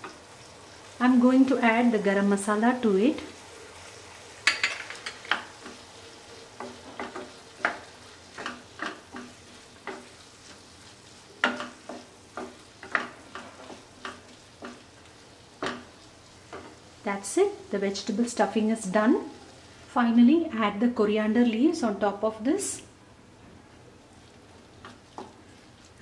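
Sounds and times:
faint sizzle: 0:00.0 - 0:26.0
wooden spatula scraping a pan: 0:06.6 - 0:16.8, 0:24.1 - 0:26.0.

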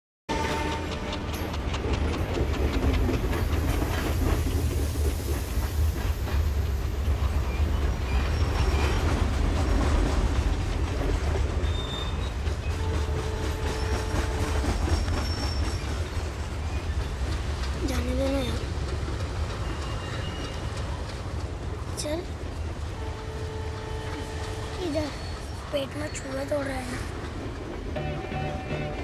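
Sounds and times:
train rumbling: 0:00.3 - 0:29.0
wheels clattering over rails: 0:00.3 - 0:29.0.

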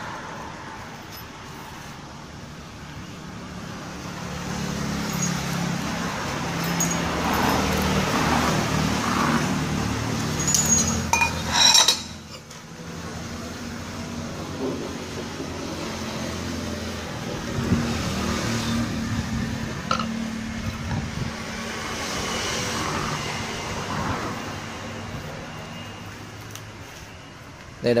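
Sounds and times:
vehicle engine passing by: 0:03.2 - 0:11.2, 0:12.8 - 0:25.8
sharp metallic clinks: 0:05.0 - 0:08.0, 0:10.2 - 0:12.5.

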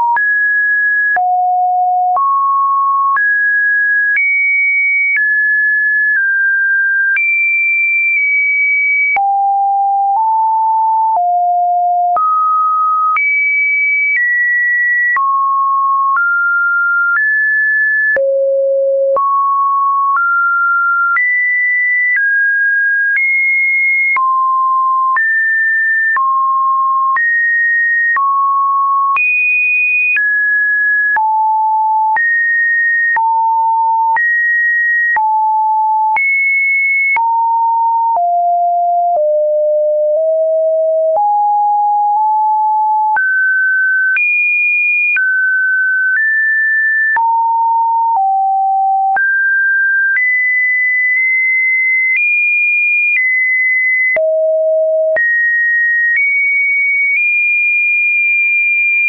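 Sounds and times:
sine wave test beeps: 0:00.0 - 0:06.2, 0:08.2 - 0:14.3, 0:15.0 - 0:22.4, 0:33.1 - 0:34.4, 0:35.1 - 0:44.2, 0:46.1 - 0:52.2, 0:53.2 - 0:55.4.

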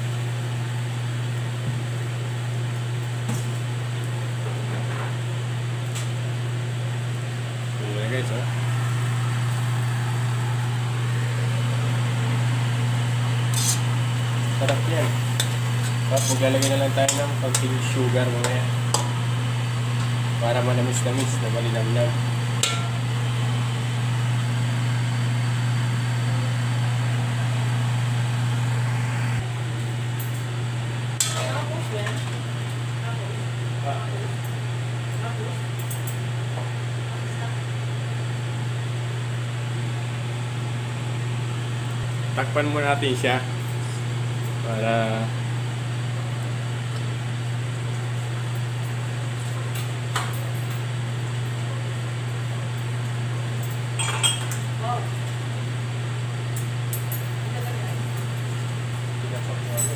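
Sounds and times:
steady low hum with hiss: 0:05.3 - 0:36.2.

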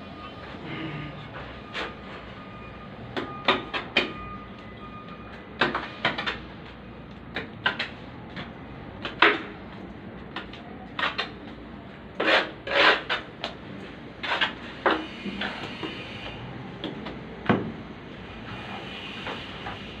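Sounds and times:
trowel scraping and knocking: 0:10.4 - 0:11.5, 0:12.2 - 0:13.6, 0:14.2 - 0:15.7.

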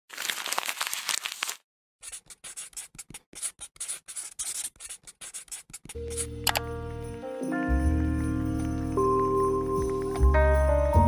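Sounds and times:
pen scratching on paper: 0:02.0 - 0:06.3.

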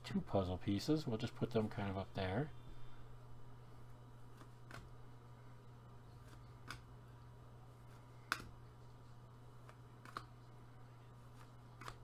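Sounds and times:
cards clicking and tapping: 0:06.2 - 0:06.9, 0:08.2 - 0:08.6, 0:09.6 - 0:10.4, 0:11.3 - 0:12.0.

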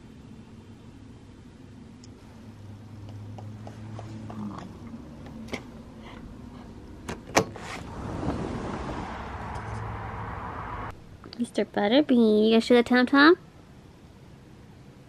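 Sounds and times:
rush of outdoor noise: 0:00.0 - 0:15.0
low hum: 0:07.7 - 0:11.3.

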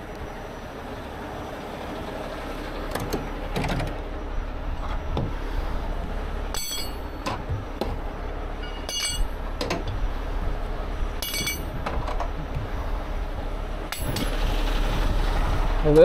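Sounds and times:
diesel engine idling: 0:00.0 - 0:16.0
metal shackles clinking: 0:06.5 - 0:10.1, 0:11.2 - 0:12.6, 0:13.9 - 0:14.4.

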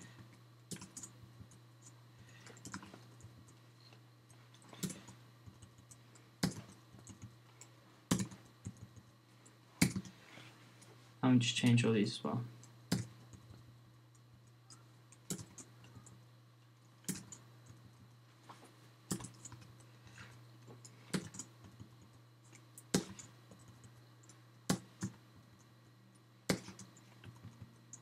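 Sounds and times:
low steady hum: 0:00.0 - 0:28.0
keyboard typing: 0:00.2 - 0:03.6, 0:04.5 - 0:09.1, 0:09.8 - 0:10.2, 0:12.6 - 0:16.2, 0:17.0 - 0:18.1, 0:19.1 - 0:19.8, 0:21.1 - 0:25.7, 0:26.5 - 0:28.0.

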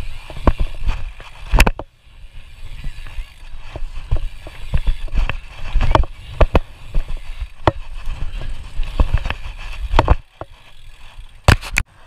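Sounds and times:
scooter wheels rolling on concrete: 0:00.0 - 0:12.0.

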